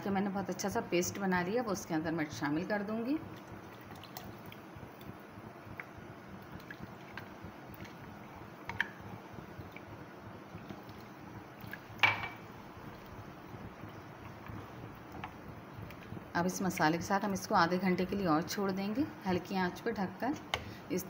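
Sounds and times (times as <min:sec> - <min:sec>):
faint wet liquid sounds: 0:00.4 - 0:21.0.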